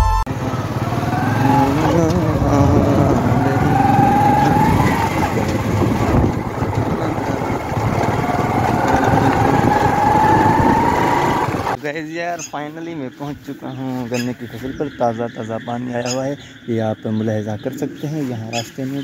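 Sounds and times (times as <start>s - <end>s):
motorcycle engine revving: 0.3s - 11.8s.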